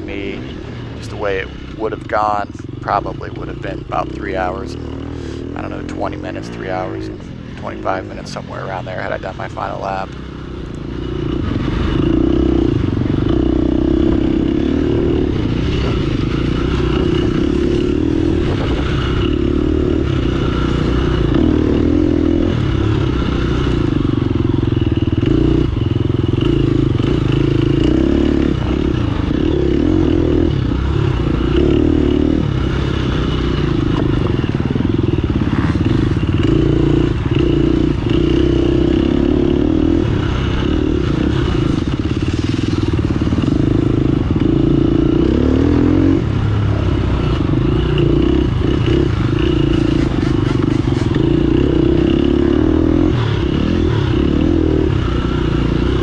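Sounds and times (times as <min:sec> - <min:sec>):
motorcycle engine running hard: 0:00.0 - 0:56.0
bike knocking and rattling: 0:47.4 - 0:52.3.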